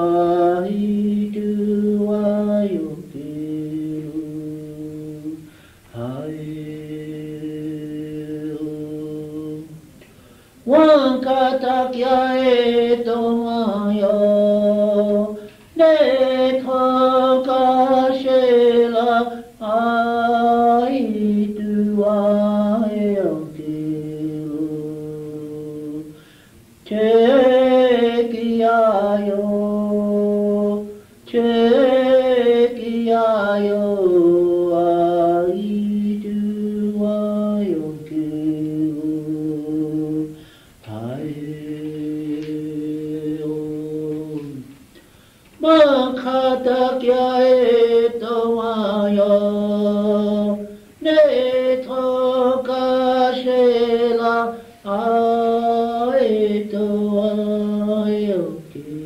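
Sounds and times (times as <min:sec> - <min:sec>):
unaccompanied chanted song: 0:00.0 - 0:26.2, 0:26.8 - 0:44.8, 0:45.6 - 0:59.0
singer breathing: 0:05.4 - 0:05.9, 0:10.1 - 0:10.7, 0:26.1 - 0:26.7, 0:40.3 - 0:40.8, 0:44.8 - 0:45.6.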